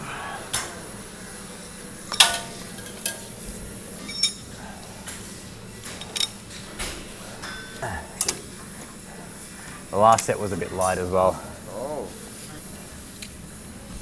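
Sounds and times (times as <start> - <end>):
metal gym weights clanking: 4.0 - 4.5.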